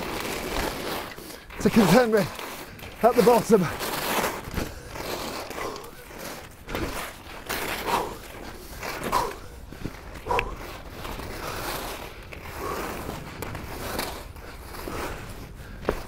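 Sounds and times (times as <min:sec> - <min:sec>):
skis swishing through snow: 0:00.0 - 0:16.0.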